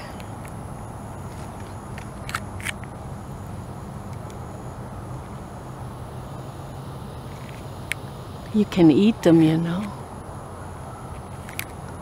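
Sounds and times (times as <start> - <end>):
low outdoor hum: 0.0 - 12.0
camera handling noise: 1.2 - 2.9, 11.4 - 11.8.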